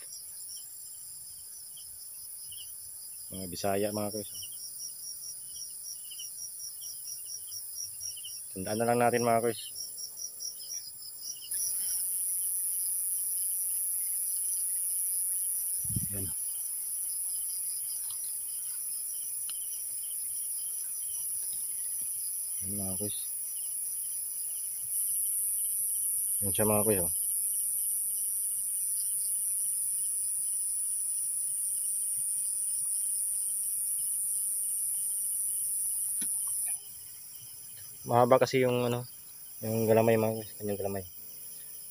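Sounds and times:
crickets chirping: 0:00.0 - 0:41.9
high-pitched insect drone: 0:05.5 - 0:41.9.

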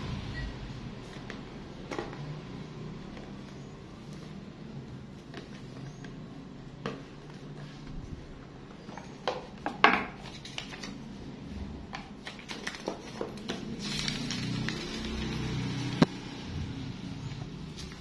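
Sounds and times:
paper rustling: 0:10.2 - 0:11.2, 0:12.2 - 0:16.0.

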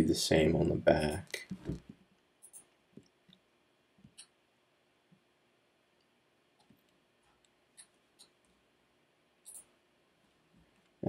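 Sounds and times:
computer mouse clicks: 0:09.4 - 0:09.7.

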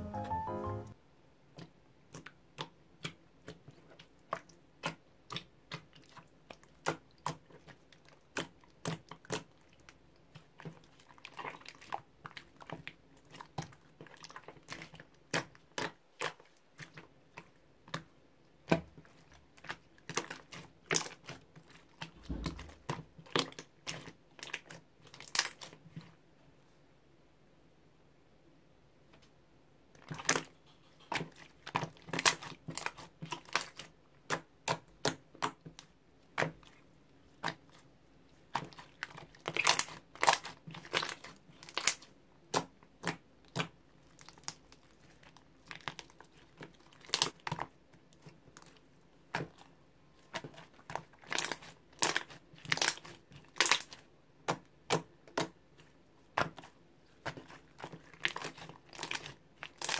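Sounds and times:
slime crackling and popping: 0:38.5 - 0:44.8, 0:50.3 - 0:55.6, 0:56.3 - 0:59.9.

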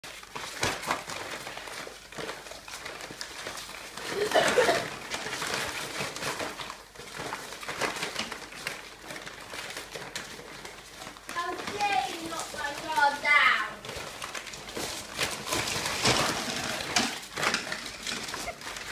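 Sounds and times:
ferrets scrabbling in a sack: 0:00.0 - 0:18.9
sack rustling and crinkling: 0:00.0 - 0:18.9.

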